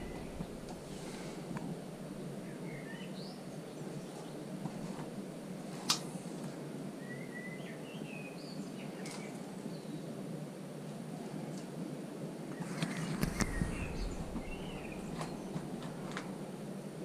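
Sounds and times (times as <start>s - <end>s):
birds chirping: 0.0s - 5.4s, 6.9s - 10.2s, 12.5s - 16.6s
low background noise: 0.0s - 17.0s.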